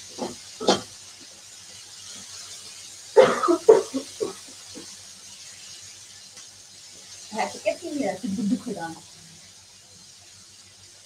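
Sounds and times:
vegetables sizzling in a frying pan: 0:00.0 - 0:11.0
person's voice: 0:07.3 - 0:09.0.

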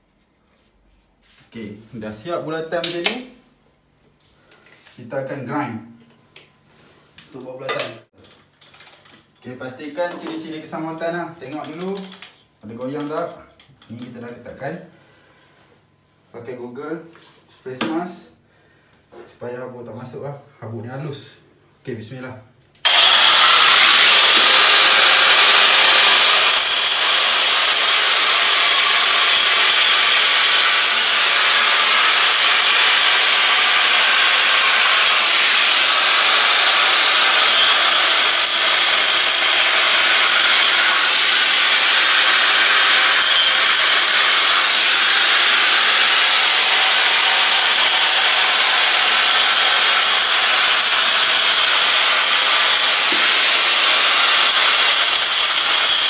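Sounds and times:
angle grinder cutting wall: 0:22.8 - 0:56.0.

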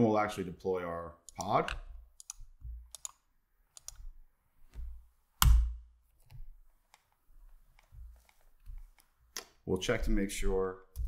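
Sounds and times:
computer keys clicking: 0:01.3 - 0:03.2, 0:03.8 - 0:04.0.

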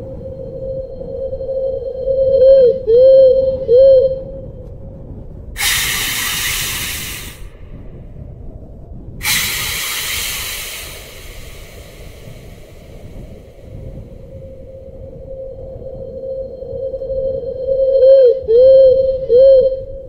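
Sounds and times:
hissing bursts: 0:05.6 - 0:07.7, 0:09.2 - 0:13.8.

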